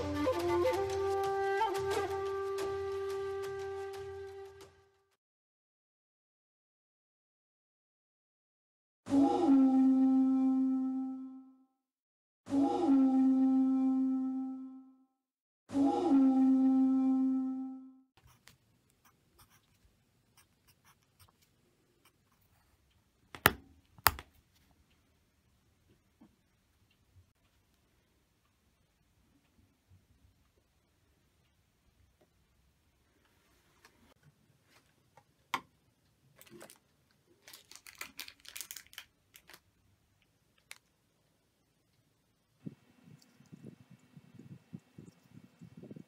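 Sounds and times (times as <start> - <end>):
pencil scratching on paper: 18.2 - 19.7, 20.4 - 21.4
plastic packaging crinkling: 36.3 - 39.7.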